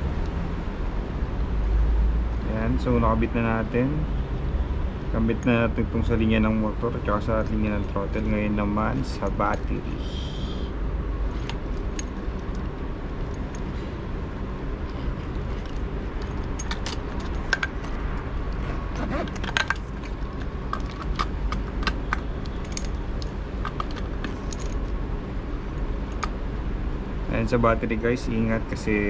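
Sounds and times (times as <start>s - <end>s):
low background rumble: 2.2s - 28.2s
plastic connectors clicking and rattling: 14.9s - 18.3s, 19.3s - 24.8s.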